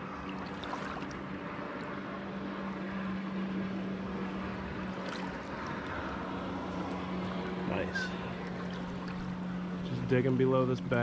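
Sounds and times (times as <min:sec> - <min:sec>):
constant low hum: 0:00.0 - 0:11.0
shallow river water rushing: 0:00.0 - 0:11.0.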